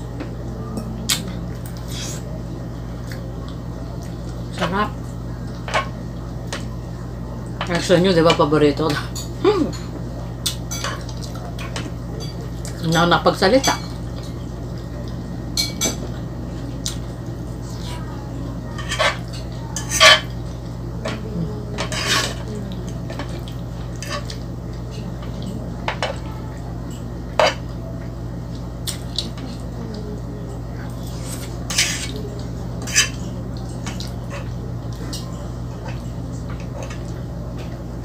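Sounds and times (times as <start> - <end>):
fork scraping a frying pan: 21.8 - 22.4, 31.2 - 32.1, 32.8 - 33.2.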